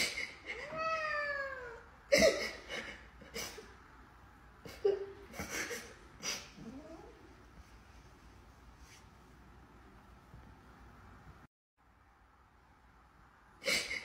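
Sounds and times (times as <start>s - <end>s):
cat meowing: 0.6s - 1.8s.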